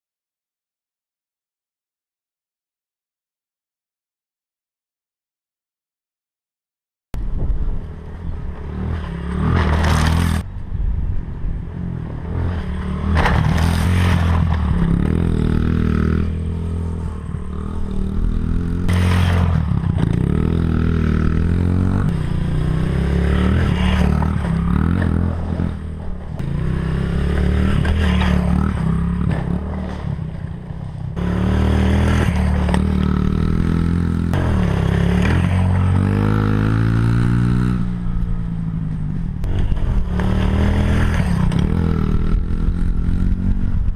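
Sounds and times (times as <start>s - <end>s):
pit bike engine revving: 12.2s - 30.2s, 31.1s - 38.0s, 39.4s - 43.8s.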